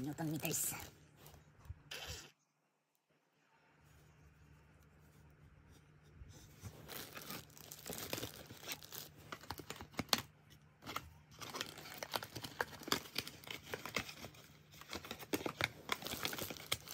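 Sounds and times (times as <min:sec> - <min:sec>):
packaging crinkling and rustling: 0:06.6 - 0:16.9.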